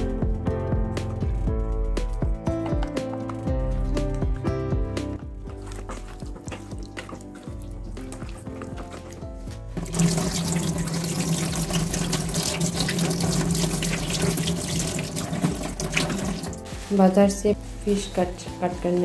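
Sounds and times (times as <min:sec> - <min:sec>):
background music: 0:00.0 - 0:19.0
tap water running into sink: 0:09.7 - 0:16.6.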